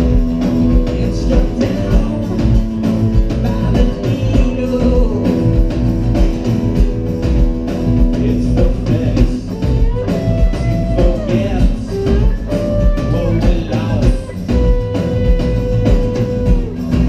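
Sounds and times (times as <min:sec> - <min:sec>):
drum hits: 0:00.0 - 0:17.0
gliding guitar line: 0:00.0 - 0:17.0
live rock band playing: 0:00.0 - 0:17.0.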